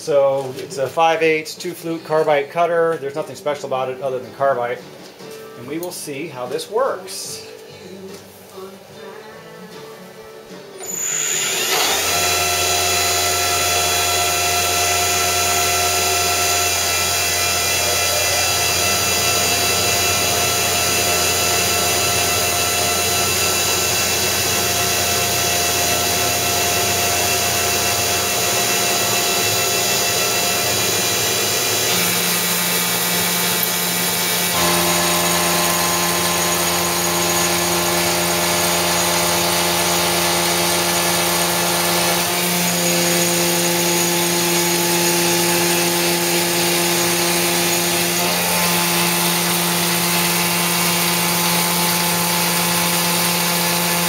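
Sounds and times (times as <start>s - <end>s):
milling machine cutting metal: 10.8s - 54.0s.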